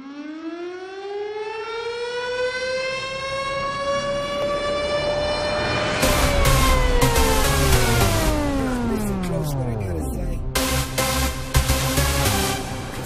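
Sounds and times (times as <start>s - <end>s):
wailing air-raid siren: 0.0s - 9.5s.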